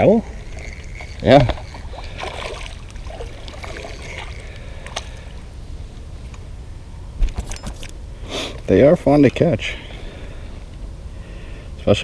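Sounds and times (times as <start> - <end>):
faint water sounds: 0.0 - 6.1
low steady rumble: 0.0 - 12.0
fish splashing at the surface: 0.6 - 5.2.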